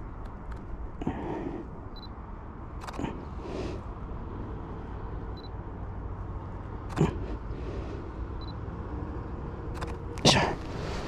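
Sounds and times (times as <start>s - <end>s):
steady low rumble: 0.0s - 11.0s
camera shutter clicks: 2.8s - 3.1s, 9.8s - 10.0s.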